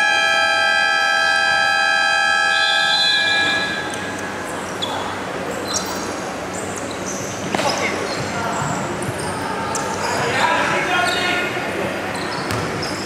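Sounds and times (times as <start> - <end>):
scoreboard buzzer blare: 0.0 - 3.9.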